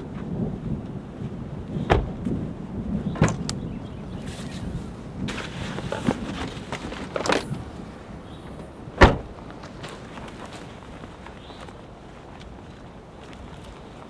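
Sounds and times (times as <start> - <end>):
knocks and thumps: 1.9 - 2.4
nylon bags rustling: 4.2 - 8.0
footsteps: 4.2 - 14.0.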